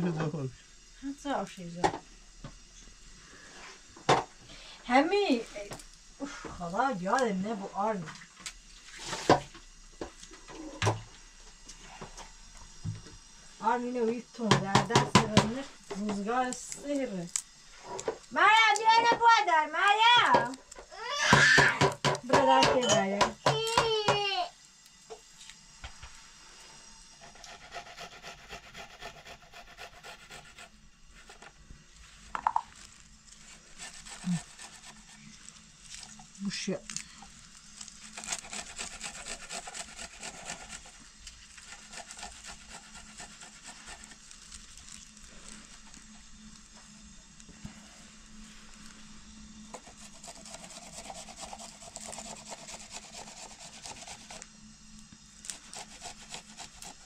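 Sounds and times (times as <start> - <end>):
rapid scraping strokes: 27.2 - 31.5, 33.3 - 35.4, 37.7 - 44.8, 49.7 - 54.4, 55.4 - 57.0.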